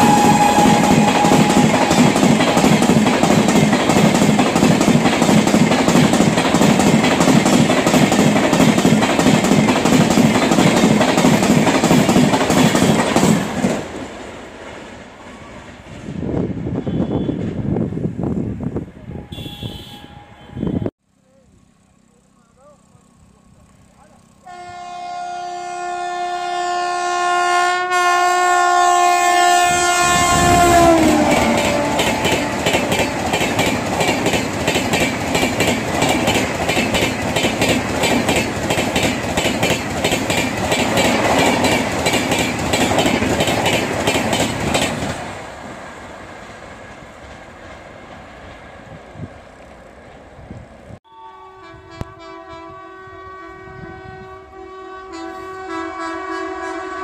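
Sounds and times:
train horn: 0:00.0 - 0:03.0, 0:16.7 - 0:17.6, 0:19.0 - 0:20.9, 0:24.4 - 0:33.6, 0:51.0 - 0:57.0
train wheels clickety-clack: 0:00.0 - 0:16.1, 0:30.8 - 0:45.4.

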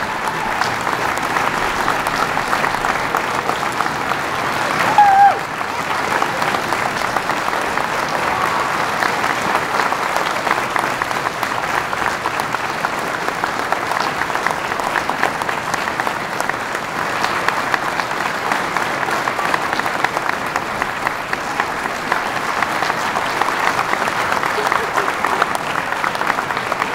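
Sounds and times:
audience applauding: 0:00.0 - 0:26.9
voices: 0:24.1 - 0:25.8.

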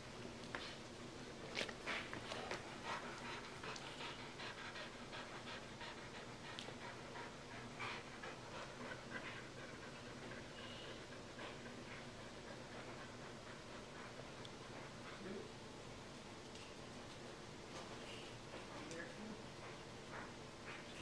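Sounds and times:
dog panting: 0:01.5 - 0:15.6, 0:17.8 - 0:21.0.

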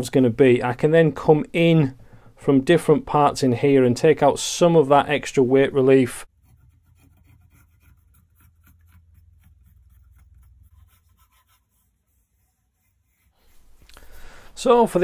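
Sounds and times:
pencil scratching on wood: 0:06.3 - 0:14.2.

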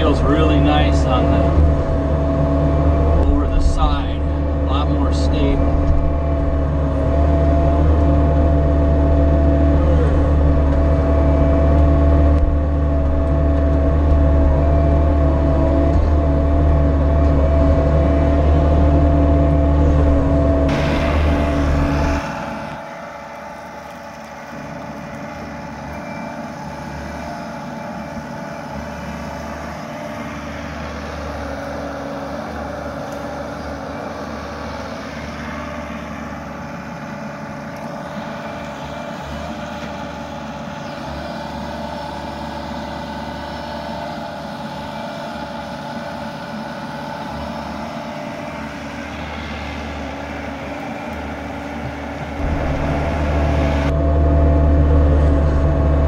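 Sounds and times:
excavator diesel engine drone: 0:00.0 - 0:56.0.

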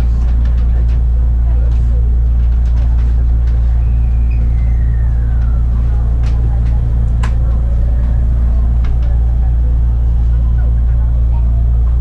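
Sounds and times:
train interior low hum: 0:00.0 - 0:12.0
faint falling whistle: 0:03.8 - 0:05.6.

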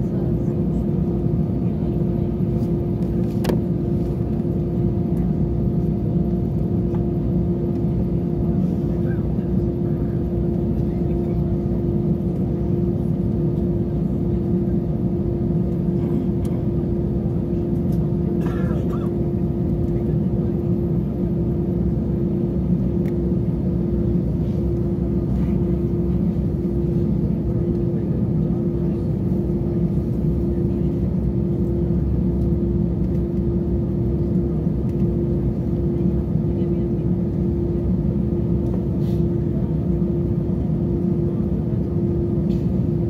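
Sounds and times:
jet engines idling rumble: 0:00.0 - 0:43.0.

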